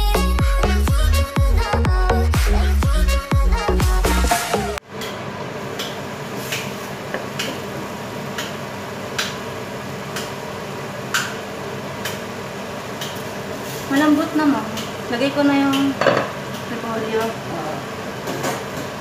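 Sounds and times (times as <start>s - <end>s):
dance music: 0.0s - 4.8s.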